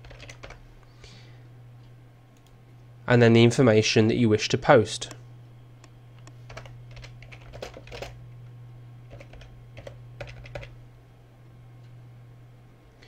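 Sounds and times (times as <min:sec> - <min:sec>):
typing on keyboard: 0:00.0 - 0:00.6, 0:06.5 - 0:08.2, 0:09.1 - 0:10.8.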